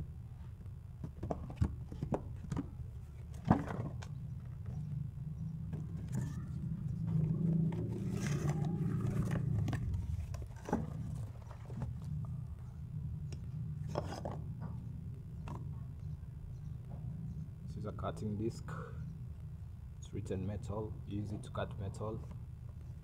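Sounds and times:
cardboard packaging rustling: 5.8 - 12.1.

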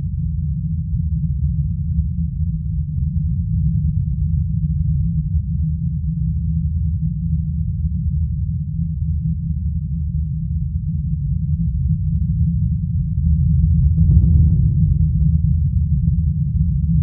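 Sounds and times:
deep rumbling drone: 0.0 - 17.0.

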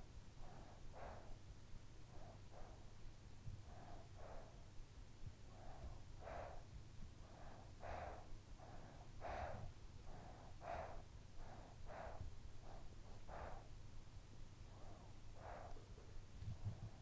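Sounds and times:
sleeping child breathing: 0.4 - 13.7, 14.7 - 16.0.

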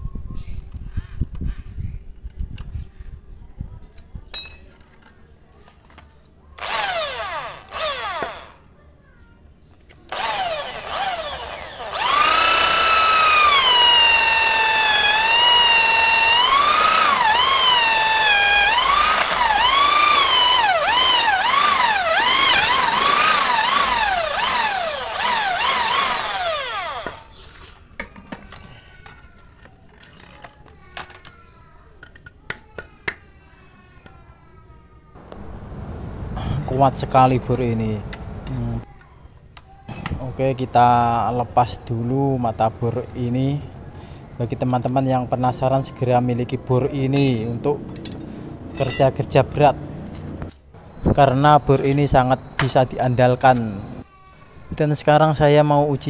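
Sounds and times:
power drill boring into wood: 6.6 - 8.6, 10.1 - 27.6.

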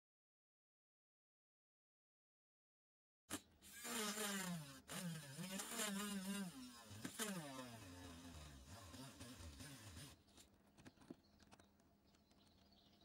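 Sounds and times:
rotary tool drilling into plastic: 3.3 - 10.6.

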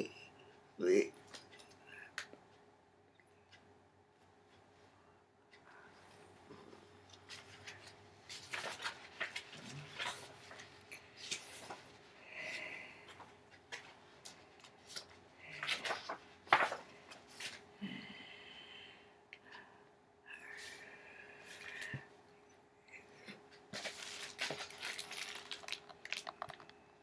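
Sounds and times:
small objects rustling: 23.7 - 26.8.

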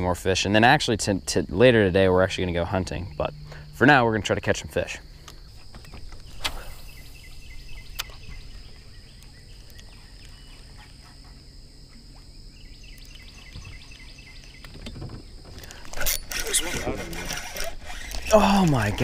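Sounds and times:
light wind rumble: 0.0 - 10.3
faint high hum: 0.0 - 14.6
fishing rod cast swish: 6.3 - 7.0
quiet reeling: 12.9 - 19.0.

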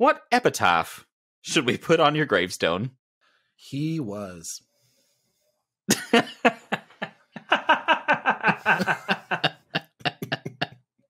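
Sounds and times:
man laughing in quick chuckles: 5.9 - 10.7.

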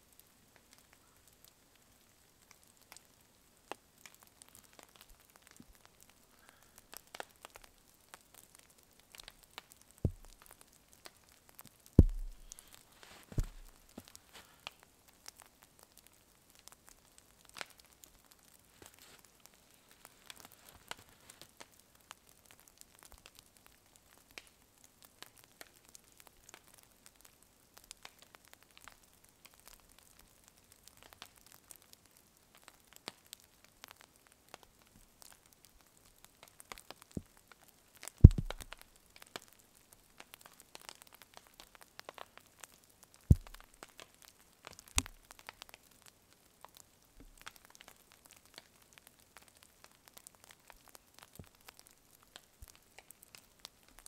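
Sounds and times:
campfire crackling: 0.0 - 54.0
thud: 10.1 - 10.4, 12.0 - 12.6, 13.3 - 13.8, 38.3 - 38.7, 43.3 - 43.6.

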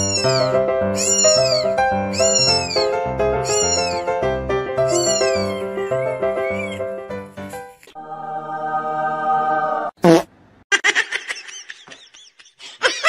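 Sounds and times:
kitten mewing: 0.0 - 4.1, 4.8 - 6.8
background music: 0.0 - 10.0.

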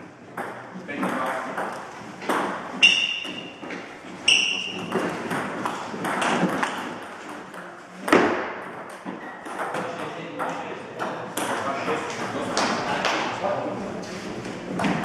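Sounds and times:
table tennis ball pinging: 0.3 - 12.0.

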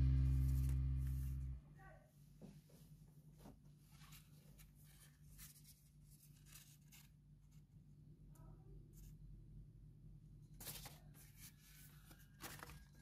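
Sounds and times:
low steady hum: 0.0 - 13.0
paper rustling and crinkling: 3.4 - 7.7, 10.6 - 13.0.

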